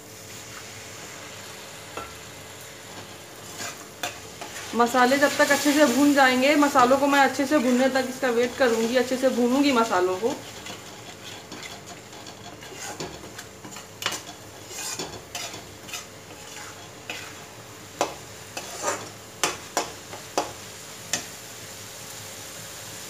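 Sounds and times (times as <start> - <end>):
oil sizzling: 0.0 - 23.0
metal spoon scraping a pan: 2.9 - 21.3.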